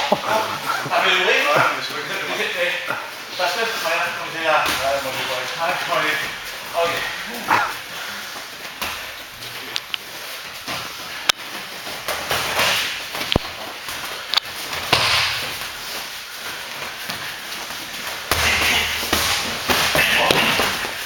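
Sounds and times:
feet shuffling on a mat: 0.0s - 21.0s.

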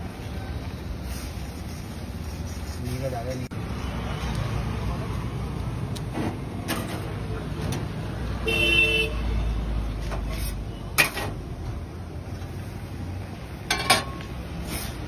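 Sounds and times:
street traffic rumble: 0.0s - 15.0s
vehicle horn honk: 8.4s - 9.2s.

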